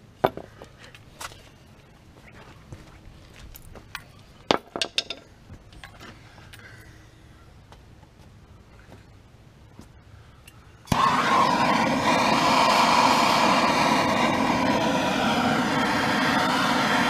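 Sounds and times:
gas torch lighting pop: 10.9 - 17.0
gas torch rushing hiss: 10.9 - 17.0.

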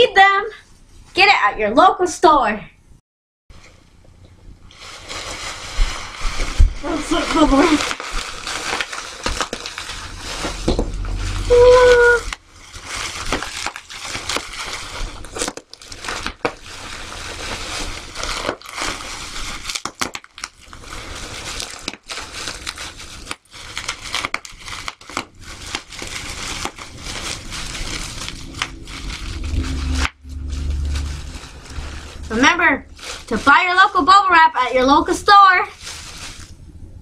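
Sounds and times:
bubble wrap crackling: 4.7 - 36.6
low rumble: 9.9 - 13.0, 25.9 - 33.7.

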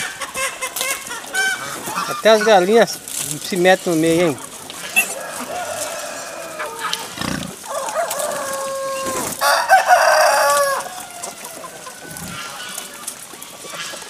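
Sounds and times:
hens clucking: 0.0 - 14.0
rooster crowing: 4.9 - 12.6.

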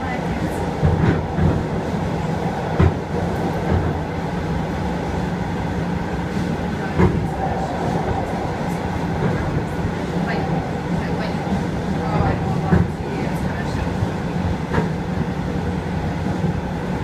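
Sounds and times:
train rumbling: 0.0 - 17.0.

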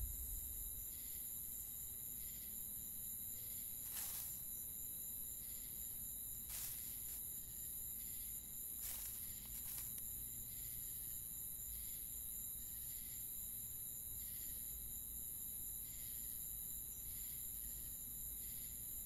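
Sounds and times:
cricket trill: 0.0 - 19.0.

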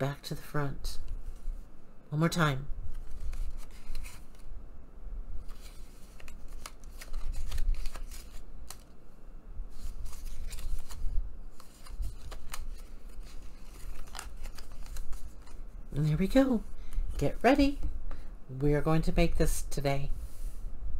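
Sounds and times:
paper card rustling and clicking: 2.9 - 4.5, 5.4 - 9.0, 9.7 - 15.7.

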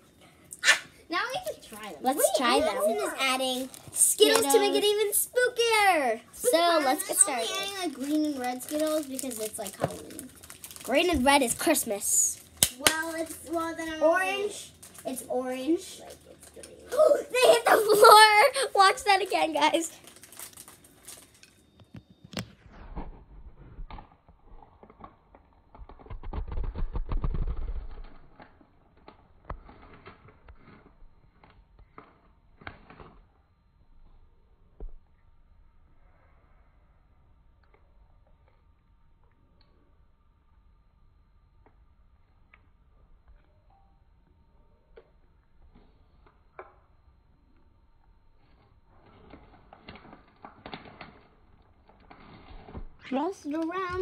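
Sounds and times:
plastic bag crinkling: 1.6 - 5.7, 6.5 - 13.6, 14.2 - 21.7
hands handling candies: 6.5 - 22.0.

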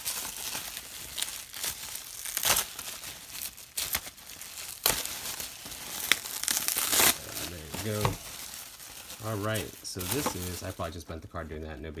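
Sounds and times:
bubble wrap crinkling: 0.0 - 12.0
bubble wrap tearing: 0.0 - 12.0.

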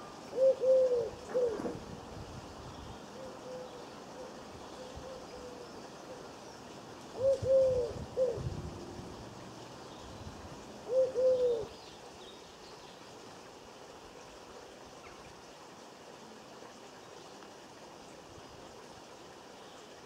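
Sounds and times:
pigeon cooing: 0.3 - 1.8, 3.2 - 5.7, 7.2 - 8.5, 10.9 - 11.7.

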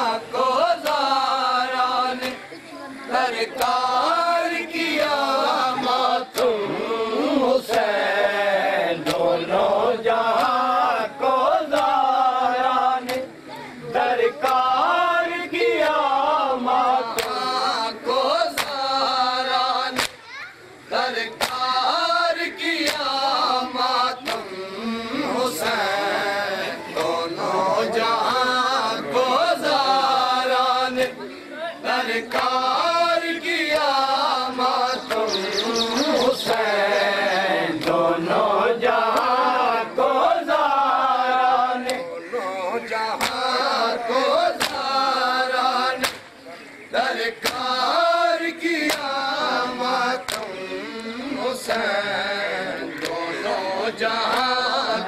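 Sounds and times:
voices chanting a lament: 0.0 - 55.0
hands slapping on chests: 0.8 - 1.2, 2.2 - 2.4, 3.5 - 3.8, 6.3 - 6.6, 7.6 - 8.0, 9.0 - 9.4, 10.3 - 10.7, 11.6 - 12.0, 13.0 - 13.4, 14.4 - 14.7, 15.8 - 16.0, 17.0 - 17.6, 18.4 - 19.0, 19.9 - 20.2, 21.2 - 22.0, 22.8 - 23.3, 24.1 - 24.6, 26.9 - 27.3, 31.0 - 31.2, 32.3 - 32.8, 33.7 - 35.3, 36.2 - 36.9, 37.7 - 38.1, 39.0 - 39.4, 41.8 - 42.1, 43.1 - 45.1, 45.9 - 46.4, 47.2 - 48.0, 48.8 - 49.4, 50.2 - 52.0, 52.7 - 53.3, 54.2 - 54.8.

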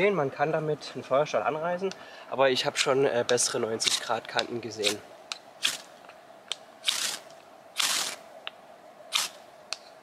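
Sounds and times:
knife scraping ferro rod: 6.8 - 8.2.

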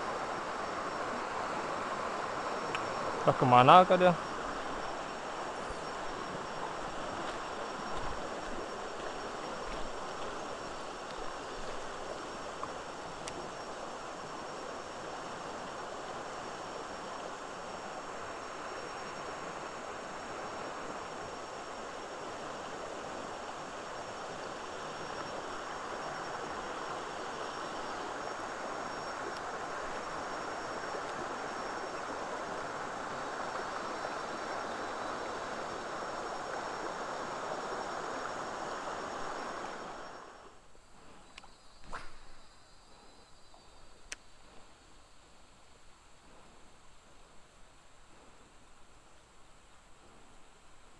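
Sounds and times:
stream rushing over rocks: 0.0 - 40.7.

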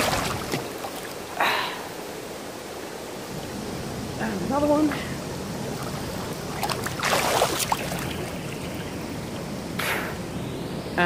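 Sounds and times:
water splashes: 0.0 - 3.0, 4.2 - 9.8
river water rushing: 0.0 - 10.9.

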